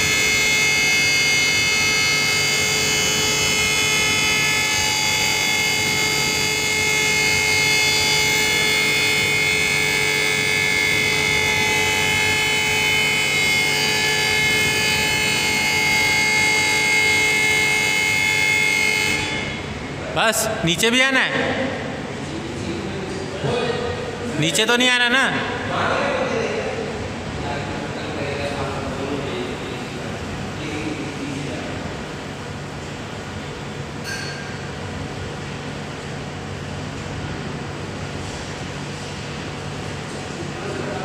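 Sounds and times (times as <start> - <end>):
hydraulic lift motor whine: 0.0 - 22.3.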